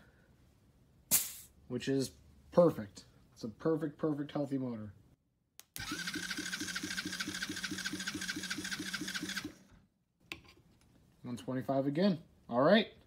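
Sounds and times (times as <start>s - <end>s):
starter motor cranking engine: 5.8s - 9.7s.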